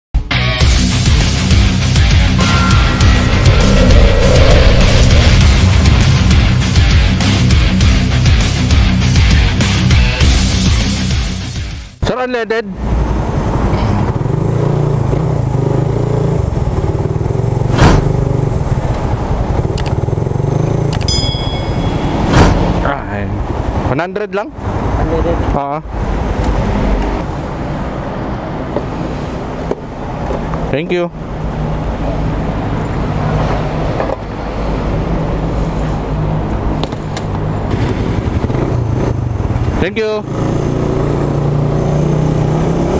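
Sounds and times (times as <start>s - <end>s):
traffic noise: 0.6s - 42.9s
loud rush of noise: 1.1s - 9.6s
low engine hum: 1.2s - 9.1s
bright chime: 21.1s - 22.4s.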